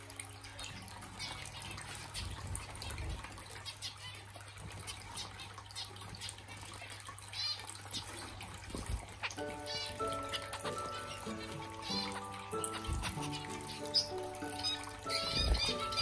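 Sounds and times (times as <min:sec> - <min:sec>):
finches pecking seed: 0:09.1 - 0:16.0.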